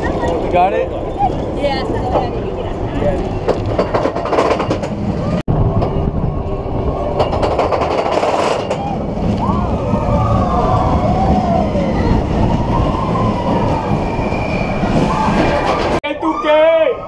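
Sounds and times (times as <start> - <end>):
roller coaster rumbling on track: 0.0 - 17.0
riders screaming and yelling: 8.6 - 17.0.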